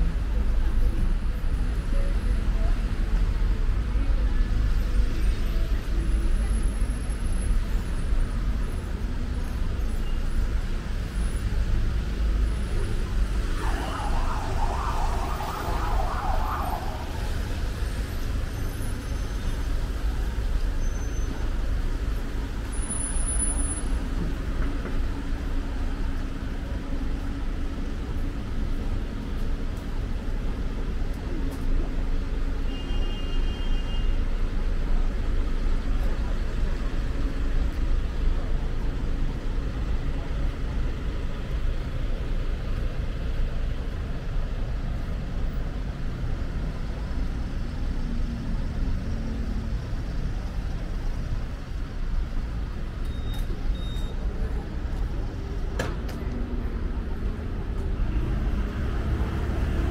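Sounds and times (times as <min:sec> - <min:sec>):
road traffic rumble: 0:00.0 - 0:59.9
higher-pitched noise burst: 0:13.4 - 0:17.7.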